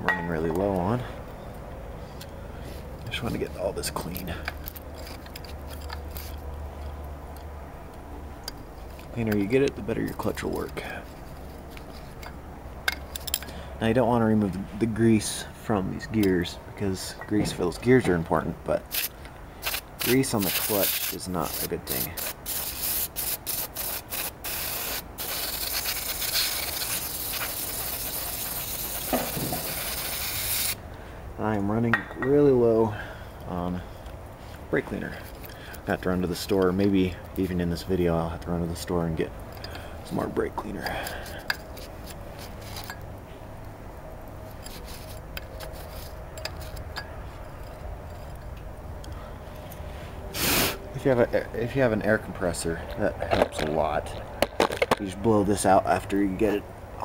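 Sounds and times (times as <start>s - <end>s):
metal parts clicking and rubbing: 3.0s - 7.6s, 8.4s - 13.5s, 18.8s - 30.8s, 35.1s - 35.8s, 39.4s - 43.2s, 44.2s - 48.7s
aerosol can spraying: 18.9s - 30.8s, 50.4s - 50.8s.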